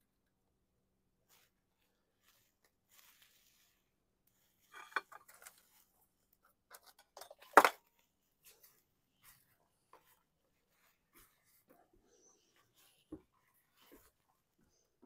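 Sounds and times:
metal parts and tools clinking: 4.7 - 5.7, 6.7 - 7.8.

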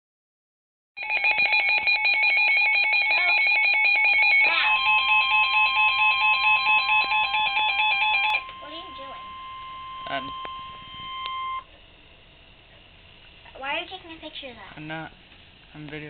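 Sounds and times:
warbling electronic alarm: 1.0 - 11.7
steady low tone: 8.4 - 13.5.

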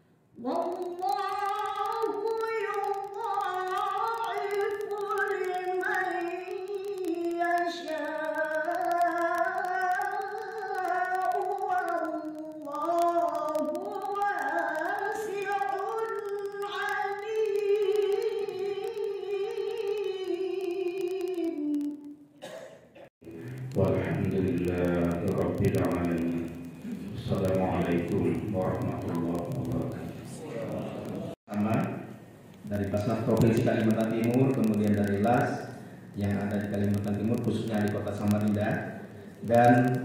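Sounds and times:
woman singing: 0.4 - 22.1.

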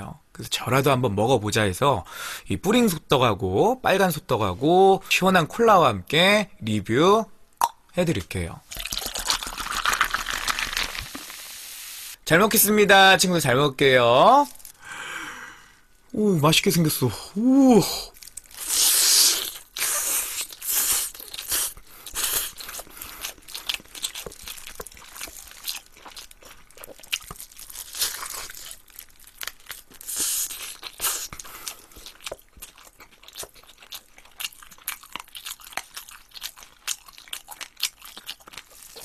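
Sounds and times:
person chewing crispy chicken: 8.7 - 11.3, 18.1 - 39.0.

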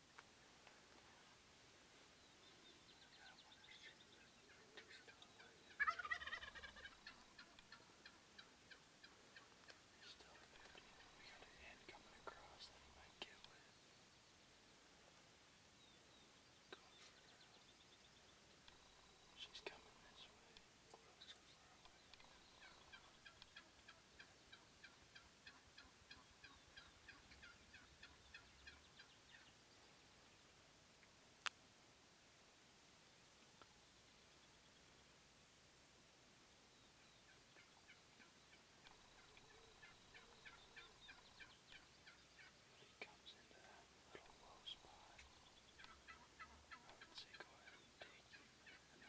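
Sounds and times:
turkey gobbling: 4.2 - 12.7, 21.2 - 29.5, 37.2 - 42.9, 43.6 - 49.0.

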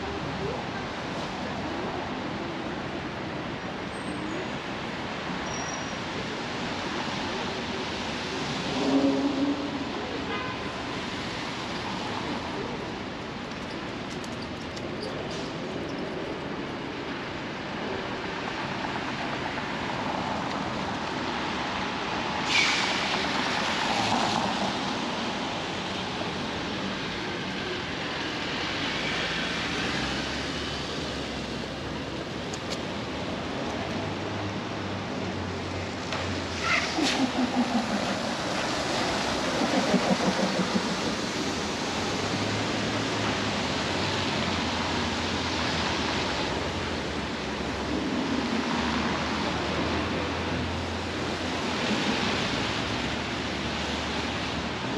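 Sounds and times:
traffic on wet streets: 0.0 - 54.9
heavy vehicle passing: 35.5 - 44.2
tyres swishing past: 35.9 - 43.0
rain hiss: 36.2 - 47.0.

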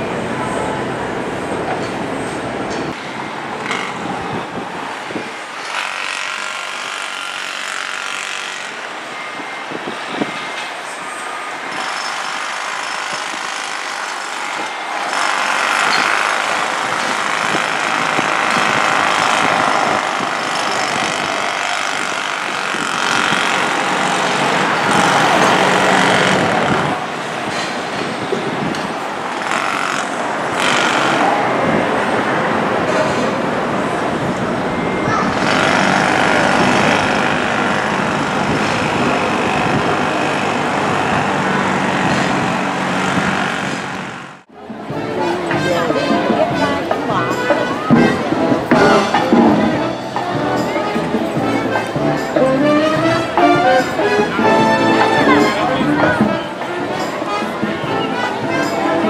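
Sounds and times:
engines and machinery: 0.0 - 44.7.

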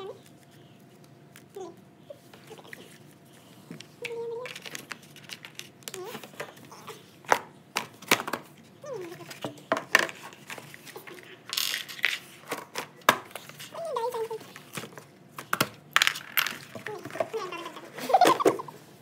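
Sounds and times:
game pieces clicking into box: 15.4 - 17.4.

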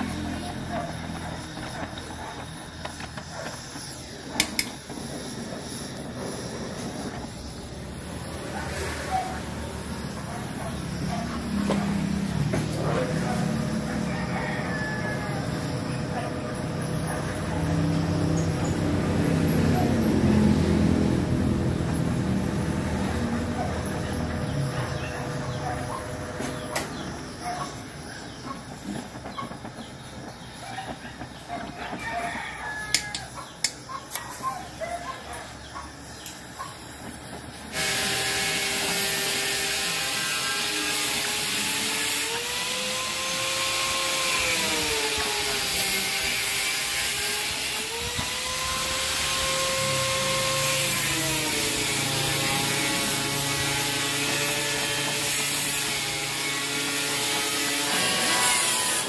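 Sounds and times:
steady whine: 0.0 - 32.1
welding torch flame hissing: 0.0 - 59.0.

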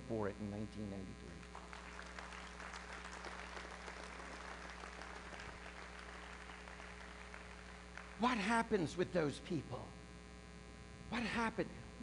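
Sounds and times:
electrical mains hum: 0.0 - 12.0
congregation applauding: 1.4 - 8.6.

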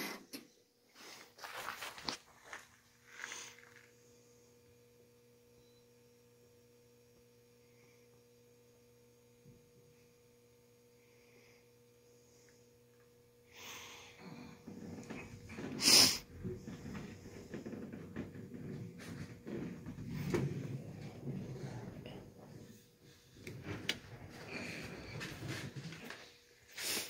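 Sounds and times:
faint electrical hum: 0.0 - 27.0
rustling and knocking: 14.6 - 26.4.

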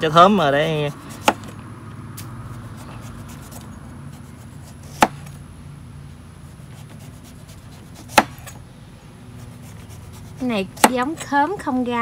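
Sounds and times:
knife cutting fruit rind: 0.1 - 5.4, 6.5 - 8.6, 9.4 - 11.3.

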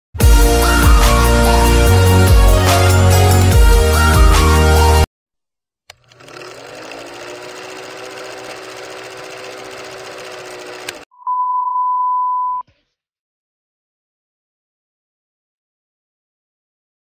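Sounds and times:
film projector whirring rattle: 5.9 - 11.1
high test-tone beep: 11.1 - 12.6.

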